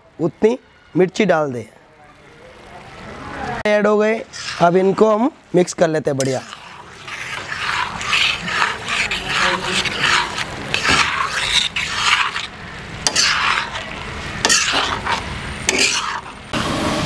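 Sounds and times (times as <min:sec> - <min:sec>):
utensil scraping a pan: 0:04.2 - 0:05.2, 0:06.2 - 0:16.7.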